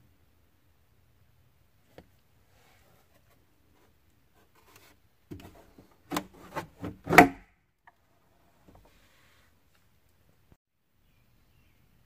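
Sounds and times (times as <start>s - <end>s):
glove box plastic scraping and knocking: 4.4s - 7.4s.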